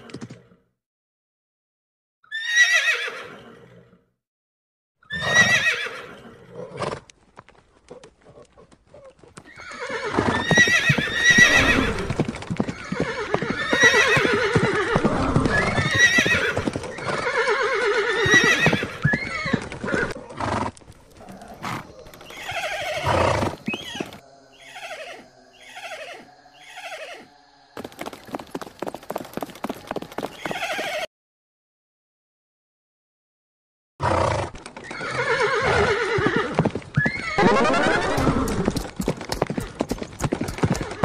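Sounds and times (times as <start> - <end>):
horses neighing: 2.3 - 3.5, 5.1 - 7.1, 8.2 - 31.1, 34.0 - 41.0
hooves clip-clopping: 6.8 - 17.5, 18.1 - 24.2, 27.8 - 31.1, 36.2 - 41.0.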